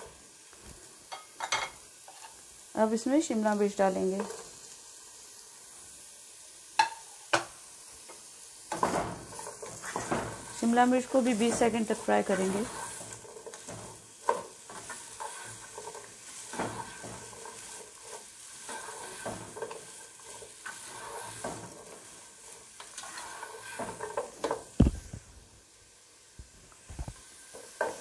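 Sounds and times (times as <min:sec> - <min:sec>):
vegetables and chicken sizzling in oil: 0:00.0 - 0:28.0
spatula scraping a pot: 0:09.2 - 0:24.6.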